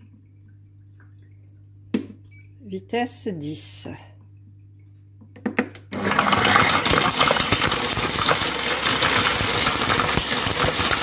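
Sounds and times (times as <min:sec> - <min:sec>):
food processor blade spinning: 0:06.0 - 0:11.0.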